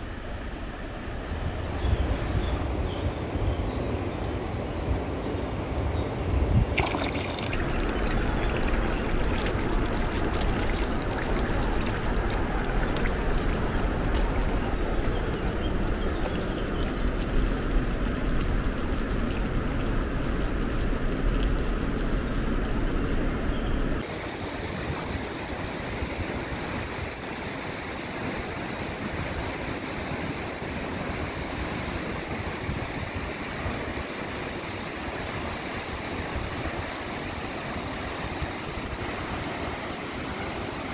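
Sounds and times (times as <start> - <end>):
rushing water with deep rumble: 6.4 - 40.9
waterfall rushing: 6.8 - 23.4.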